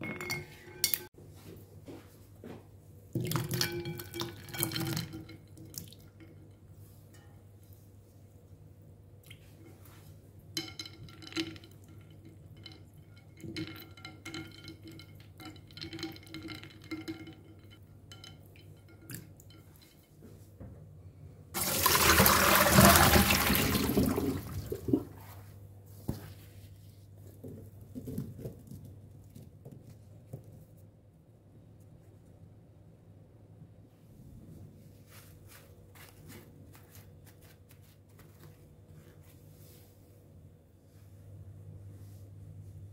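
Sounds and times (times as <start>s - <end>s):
ice cubes clinking in bowl: 3.2s - 5.4s, 10.6s - 19.0s, 21.6s - 24.7s
water poured off: 21.6s - 25.1s
handling wet potato sticks: 35.0s - 40.0s.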